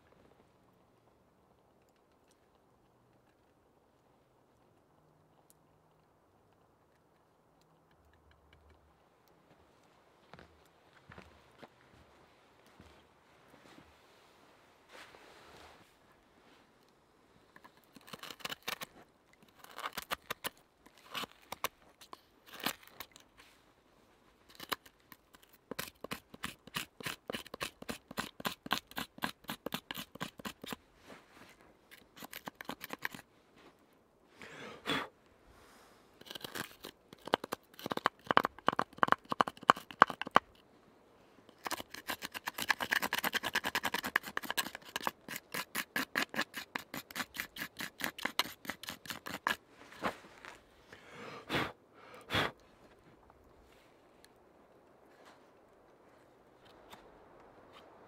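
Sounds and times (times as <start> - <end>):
knife scraping wooden spoon: 41.6 - 49.6.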